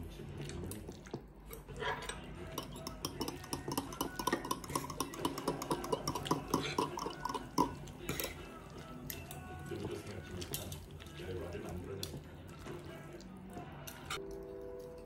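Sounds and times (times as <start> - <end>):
utensils clinking against dishes: 1.5 - 12.3.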